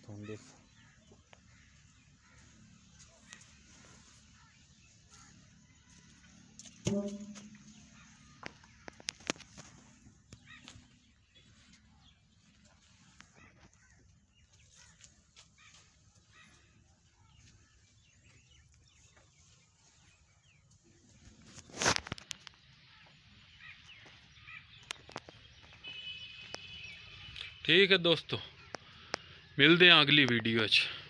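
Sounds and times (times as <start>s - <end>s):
faint birds chirping: 0.0s - 31.0s
sharp knock: 6.8s - 7.6s.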